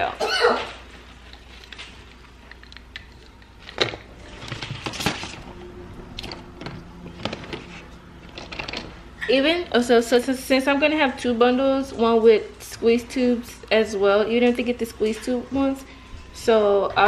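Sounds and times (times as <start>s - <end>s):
packaging rustling: 1.0s - 5.6s.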